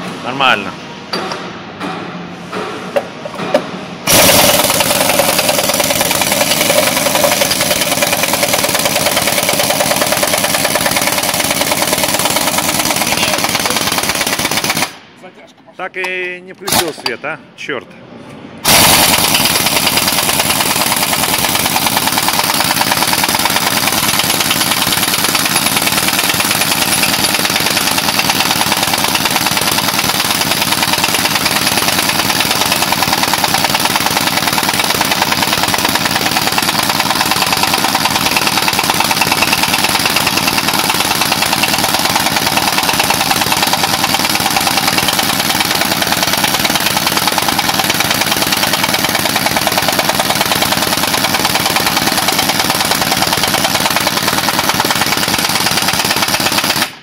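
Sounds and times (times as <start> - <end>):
machine rattling steadily: 4.0 - 15.0, 18.6 - 57.0.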